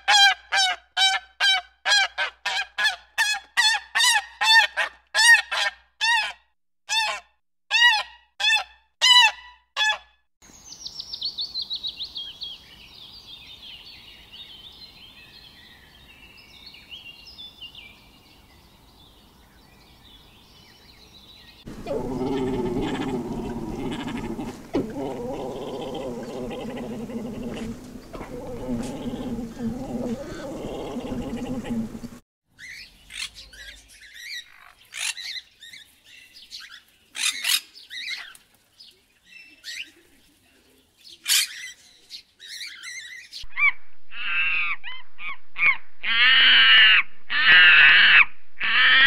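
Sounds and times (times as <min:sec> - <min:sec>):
geese honking: 0:21.7 - 0:32.2
high rapid bird chatter: 0:21.7 - 0:32.2
low rough animal sound: 0:21.7 - 0:32.2.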